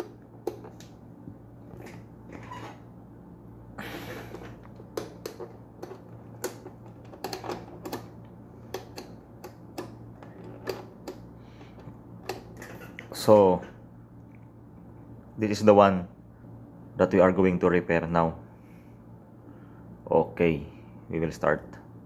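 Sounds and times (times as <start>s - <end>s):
fan switch clicks: 7.2s - 11.3s.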